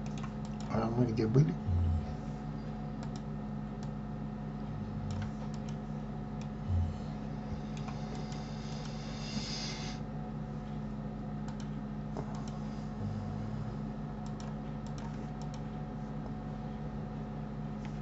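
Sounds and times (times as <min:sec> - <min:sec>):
computer mouse clicks: 0:00.0 - 0:00.7, 0:03.0 - 0:04.0, 0:05.1 - 0:05.8, 0:07.7 - 0:09.0, 0:11.4 - 0:12.6, 0:14.2 - 0:15.7
low electrical hum: 0:00.0 - 0:18.0.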